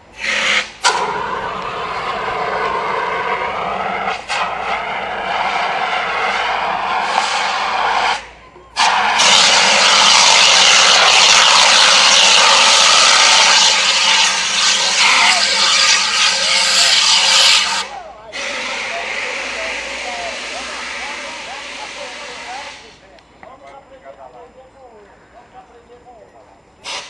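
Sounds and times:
fire extinguisher hissing: 0.2s - 8.2s, 8.8s - 23.0s.

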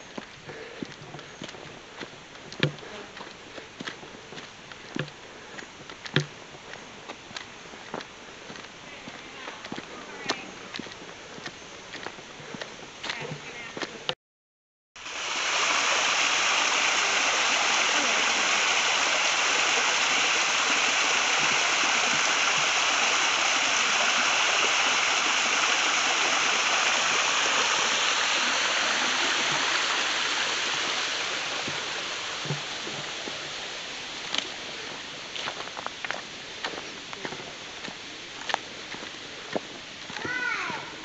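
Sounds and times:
waterfall rushing: 15.0s - 35.6s.

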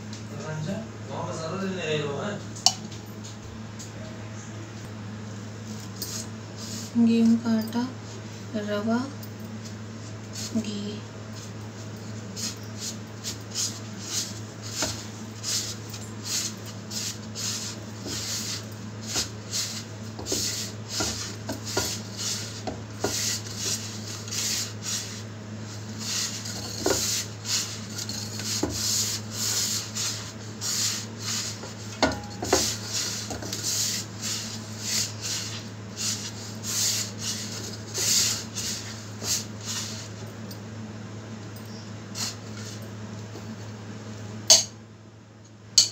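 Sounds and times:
steady low hum: 0.0s - 45.9s
hand rubbing flour in steel bowl: 5.7s - 7.1s, 10.0s - 40.3s, 42.1s - 42.8s.

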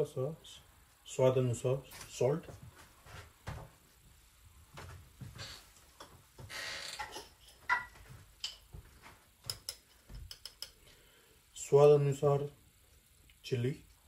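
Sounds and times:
utensils clicking and tapping: 7.0s - 8.8s, 9.4s - 10.9s.

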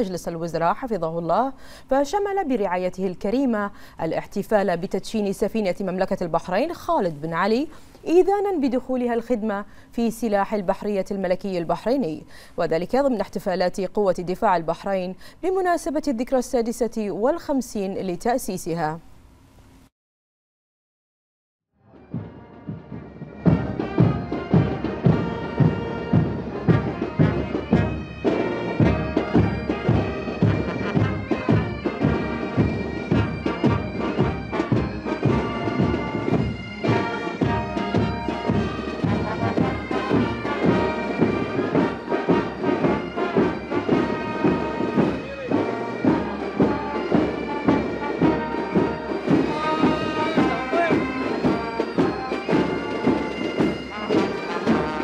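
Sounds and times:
bagpipes playing a march: 21.9s - 55.0s
steady drum beat: 22.1s - 55.0s.

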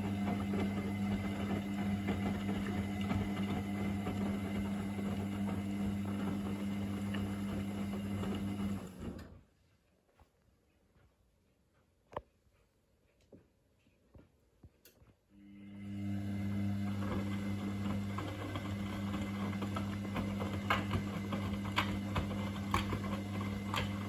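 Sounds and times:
wet laundry tumbling: 0.0s - 9.0s
washing machine drum motor humming: 0.0s - 9.3s, 15.4s - 24.0s.

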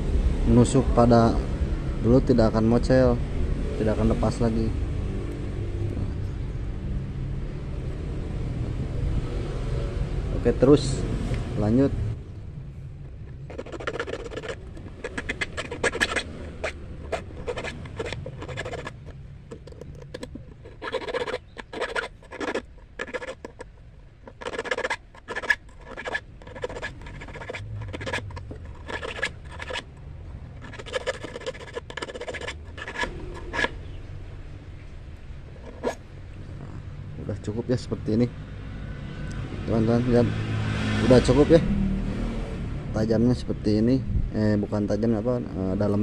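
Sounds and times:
metal file rasping on hook: 13.2s - 34.0s, 35.6s - 36.0s.

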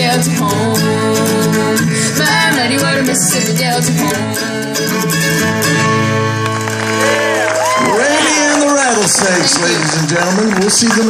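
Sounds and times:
strummed acoustic guitars: 0.0s - 11.0s.

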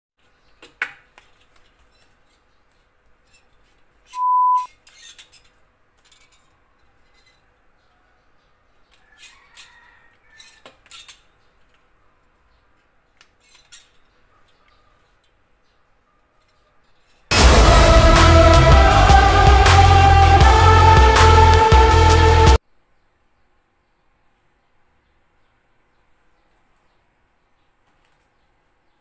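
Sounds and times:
loud steady beep: 4.2s - 4.7s.

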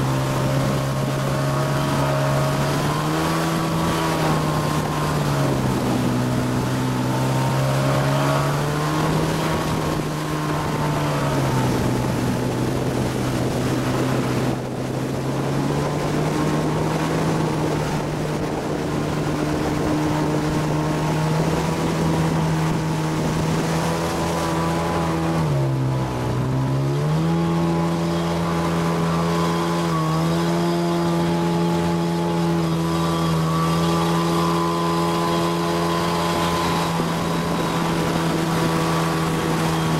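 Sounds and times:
motorboat engine running: 0.0s - 39.9s
rushing water: 0.0s - 39.9s
rushing wind: 0.0s - 39.9s.

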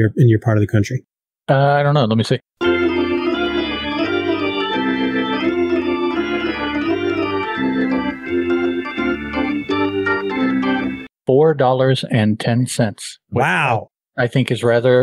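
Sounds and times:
organ music: 2.6s - 11.1s.

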